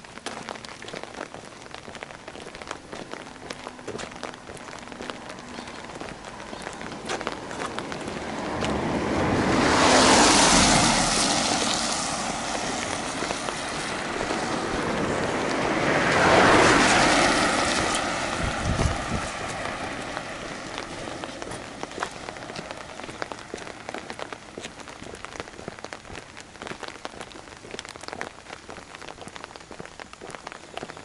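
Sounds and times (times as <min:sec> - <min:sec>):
road vehicles passing by: 0:00.1 - 0:31.0.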